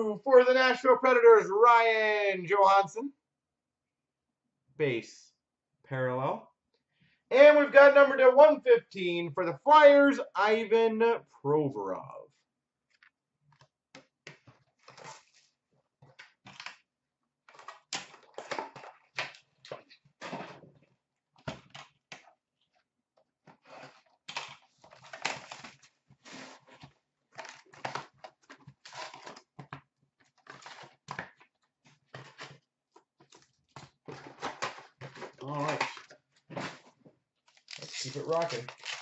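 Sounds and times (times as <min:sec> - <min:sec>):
foil packs crinkling and rustling: 0:23.6 - 0:29.6, 0:33.2 - 0:39.0.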